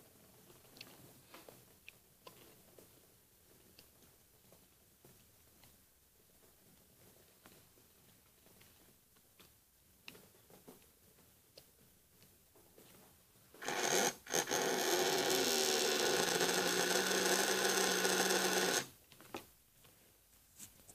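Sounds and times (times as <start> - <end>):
small electric motor whirring: 13.6 - 18.9.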